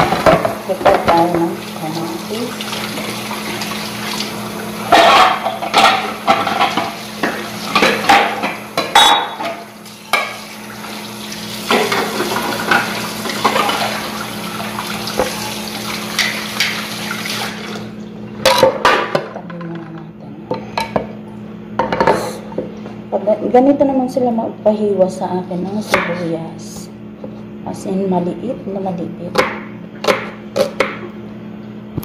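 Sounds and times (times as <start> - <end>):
utensils and dishes clattering: 0.0 - 1.5, 4.9 - 10.4, 11.7 - 14.0, 16.1 - 16.8, 18.4 - 19.9
steady low hum: 17.9 - 32.0.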